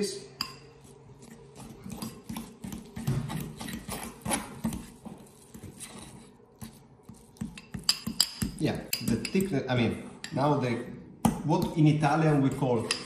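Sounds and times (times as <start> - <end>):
fork tapping against bowl: 6.6 - 9.6.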